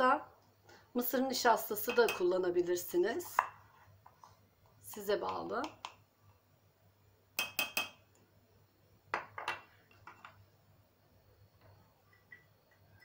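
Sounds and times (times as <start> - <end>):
spoon tapping metal bowl: 1.8 - 2.3, 7.4 - 8.0.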